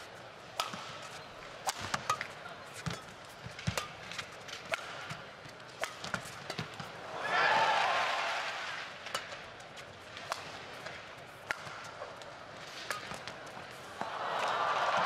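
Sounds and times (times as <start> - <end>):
racket striking shuttlecock: 0.0 - 6.9, 9.1 - 14.6
crowd cheering: 7.0 - 8.9, 14.0 - 15.0
arena crowd murmuring: 13.3 - 15.0.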